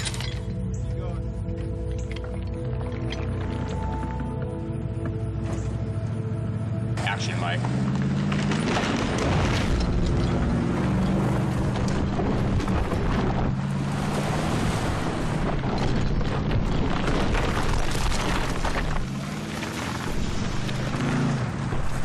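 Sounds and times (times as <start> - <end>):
dramatic music: 0.0 - 17.6
tyres churning through dirt: 1.7 - 22.0.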